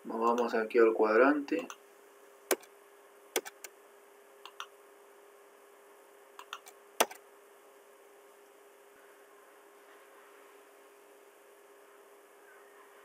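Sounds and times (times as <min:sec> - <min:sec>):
faint steady hum: 0:00.0 - 0:13.0
keyboard and mouse clicks: 0:00.2 - 0:00.5, 0:01.6 - 0:01.8, 0:03.4 - 0:03.7, 0:04.4 - 0:04.7, 0:06.4 - 0:07.2.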